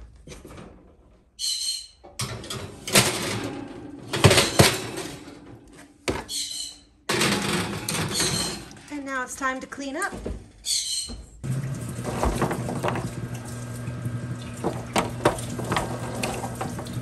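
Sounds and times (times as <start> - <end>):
baking sheet scraping on oven rack: 2.3 - 5.9, 7.1 - 8.8, 11.9 - 13.3, 14.6 - 17.0.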